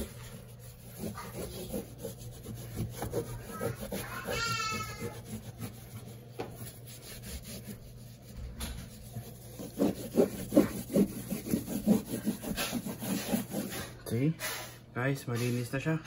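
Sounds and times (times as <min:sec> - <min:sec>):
wipe rubbing against wall: 0:00.0 - 0:14.0.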